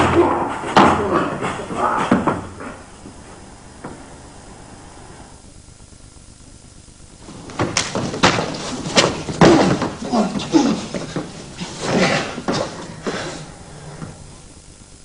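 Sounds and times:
low hiss: 0.7 - 15.0
bodies thudding on a mat: 7.2 - 13.2.

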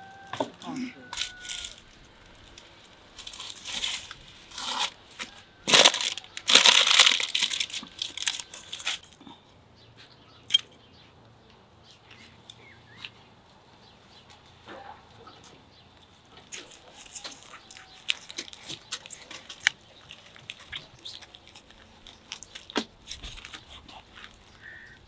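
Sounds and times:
aluminium foil crinkling: 1.1 - 9.3, 16.4 - 25.0.

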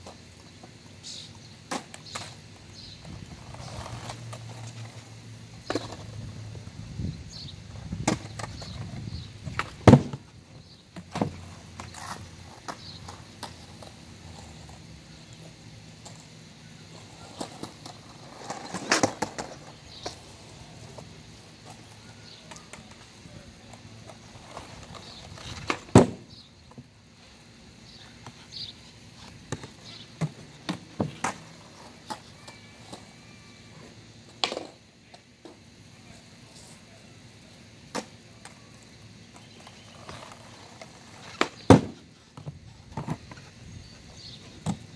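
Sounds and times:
skateboard wheels rolling on concrete: 0.0 - 44.9
skateboard clacking: 3.3 - 6.2, 8.0 - 26.9, 28.0 - 35.6, 37.8 - 44.9
skateboard taps and knocks: 9.5 - 10.3, 24.9 - 26.8, 41.2 - 43.4.

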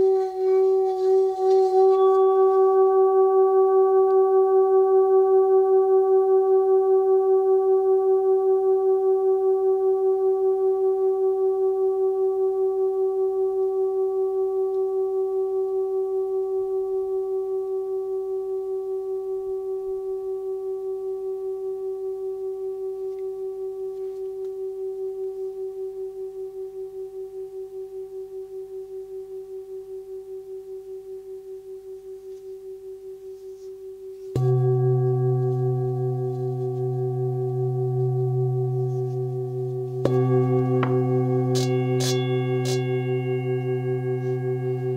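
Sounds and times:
singing bowl struck: 0.0 - 4.7, 34.2 - 44.9
singing bowl ringing: 0.0 - 44.9.

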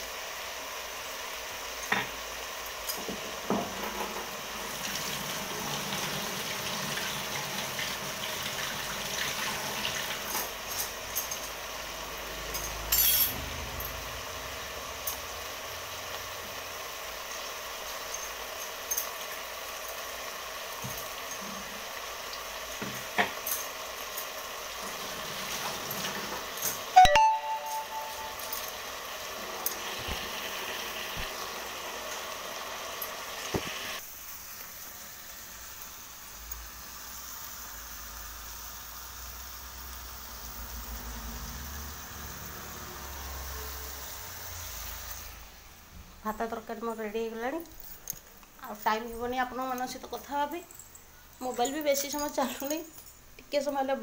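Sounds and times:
kitchen utensils clinking: 9.8 - 11.6, 12.4 - 14.0, 22.7 - 30.3, 47.4 - 54.0
utensils clattering: 12.5 - 13.5, 22.9 - 28.8, 47.6 - 53.2
steady hiss: 28.4 - 51.5.

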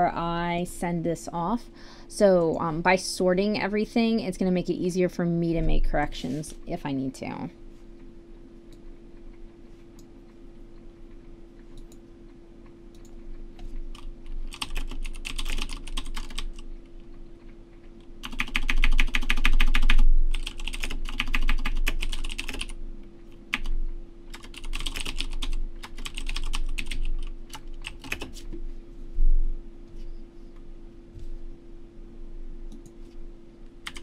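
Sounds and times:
steady low hum: 0.0 - 34.0
typing on computer keyboard: 13.9 - 16.6, 18.2 - 22.8, 24.3 - 28.4.

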